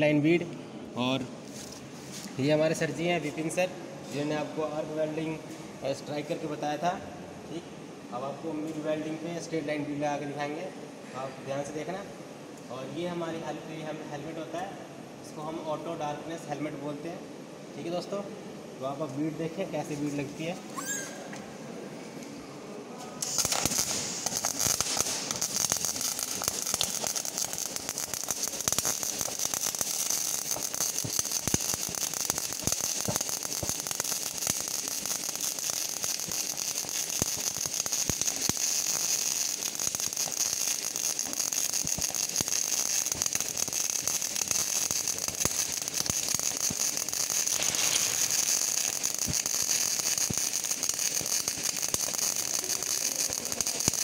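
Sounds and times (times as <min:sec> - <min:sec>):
welding arc crackling: 0:23.2 - 0:54.0.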